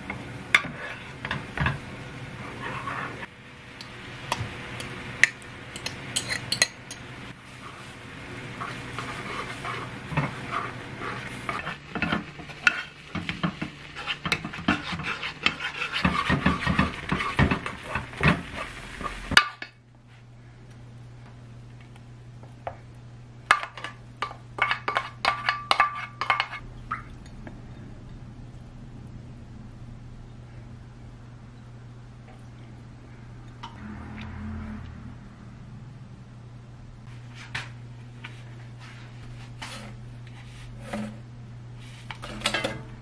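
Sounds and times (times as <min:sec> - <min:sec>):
spatula scraping porridge in pan: 0:00.6 - 0:01.2, 0:02.4 - 0:03.3, 0:08.6 - 0:19.3, 0:23.7 - 0:26.6, 0:38.8 - 0:41.2
low hum: 0:26.6 - 0:37.2.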